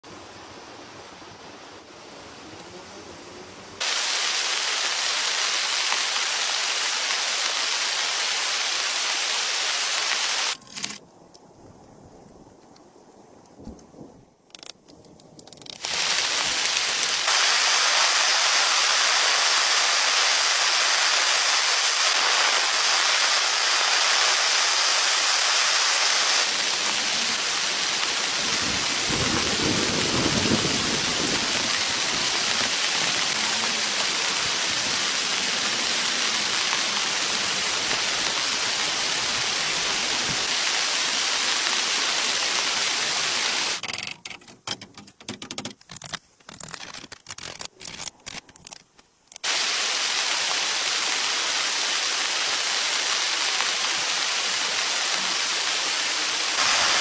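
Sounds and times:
heavy rain hiss: 0.0 - 10.6, 15.8 - 43.8, 49.4 - 57.0
low roll of thunder: 28.5 - 31.7.

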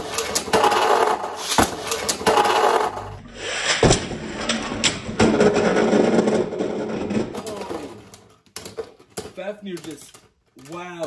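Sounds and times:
spinning tops whirring and scraping: 0.0 - 7.5.

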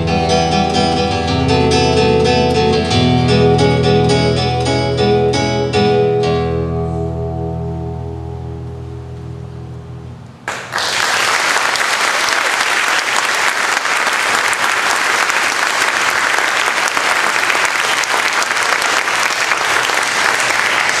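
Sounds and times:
audience applauding: 10.5 - 21.0.

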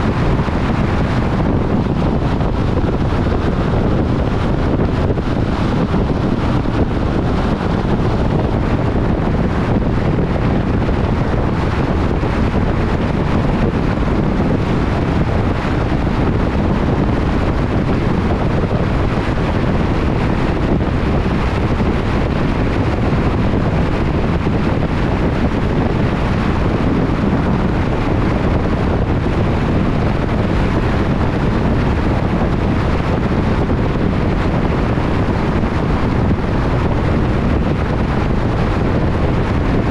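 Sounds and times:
wind and tyre noise: 0.0 - 39.9
wind buffeting microphone: 0.0 - 39.9.

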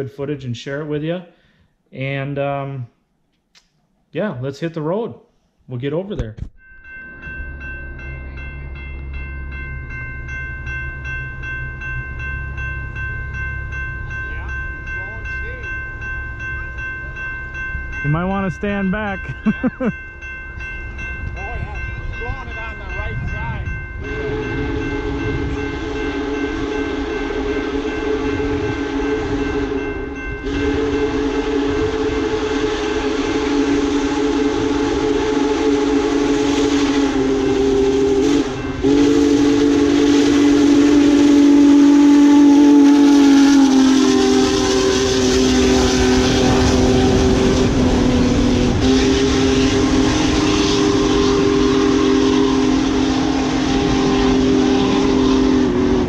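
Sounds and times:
steam locomotive whistle: 24.0 - 56.0.

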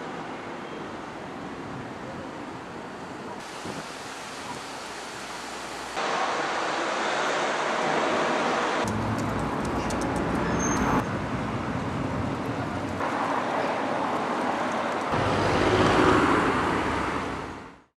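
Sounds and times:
passing cars rushing: 6.0 - 17.8.

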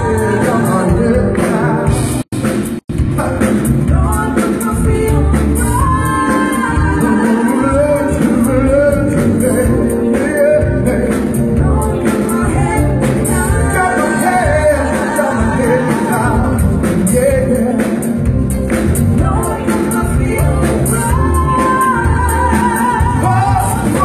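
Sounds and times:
man singing: 0.0 - 2.0, 7.0 - 11.9, 12.7 - 18.3, 23.0 - 24.0
live band playing: 0.0 - 24.0.

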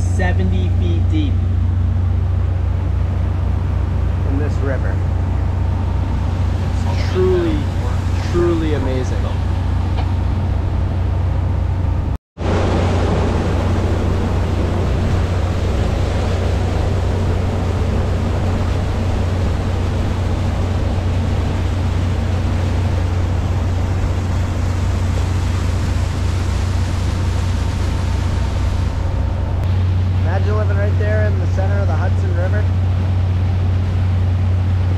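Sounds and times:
motorboat engine droning: 0.0 - 34.9
wind and water rushing: 0.0 - 34.9.

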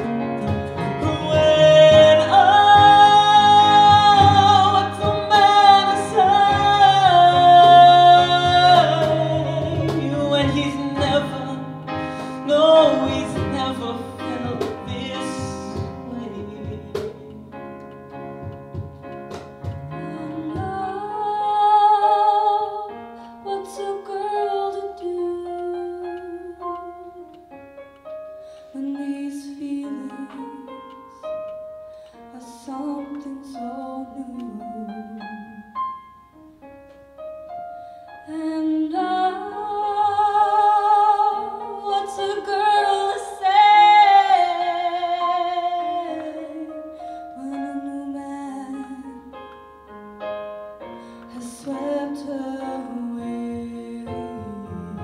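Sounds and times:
musical accompaniment: 0.0 - 55.0
woman singing with vibrato: 0.4 - 17.6, 19.9 - 27.2, 38.2 - 49.3, 51.3 - 55.0.

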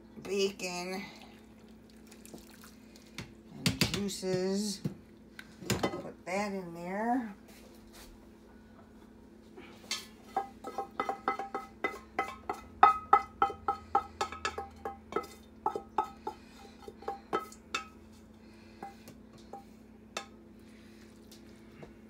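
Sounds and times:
pot scraping: 10.1 - 18.2
metal pot knocking and ringing: 10.3 - 16.2.

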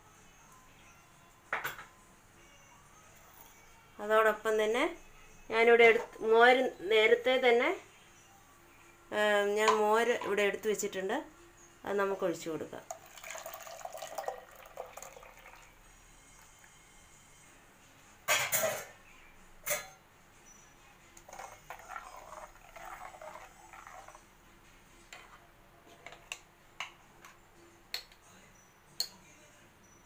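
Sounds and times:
liquid pouring into a pot: 12.8 - 15.8, 21.2 - 24.2
metal spoon scraping clay pot: 21.2 - 24.2.

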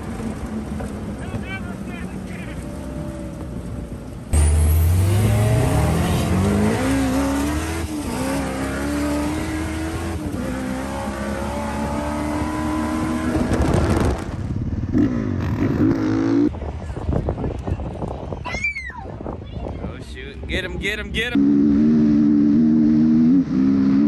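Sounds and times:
car engine accelerating hard: 4.3 - 16.5.

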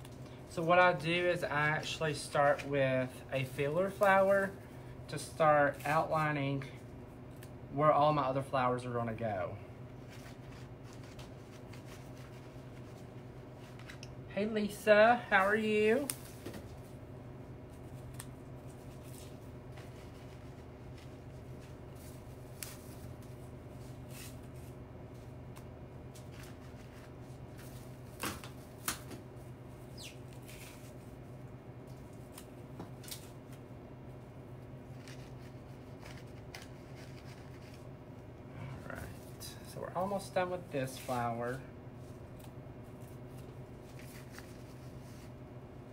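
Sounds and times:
steady low hum: 0.0 - 45.9
leaves and stalks rustling: 40.2 - 45.3.

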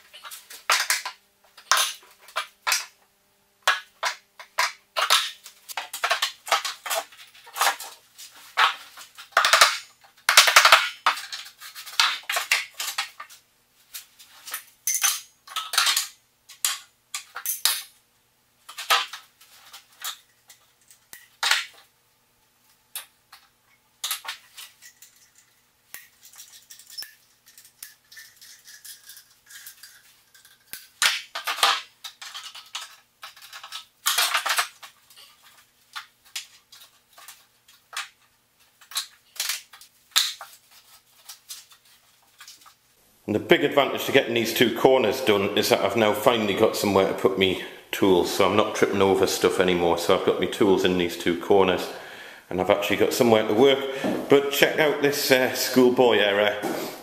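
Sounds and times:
tools and wood clattering: 0.0 - 3.0, 3.6 - 18.0, 18.6 - 21.9, 23.0 - 42.8.

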